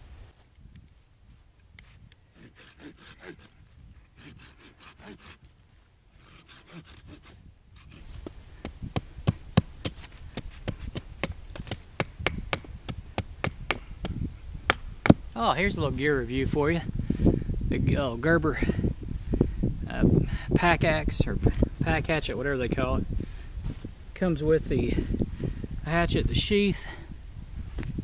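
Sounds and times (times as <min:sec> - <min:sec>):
pruning saw cutting branch: 0:01.8 - 0:05.5, 0:06.2 - 0:08.4.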